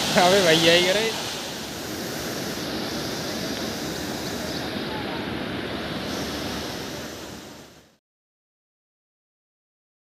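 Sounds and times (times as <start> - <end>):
water rushing over a spillway: 0.0 - 8.0
wind on microphone: 0.0 - 8.0.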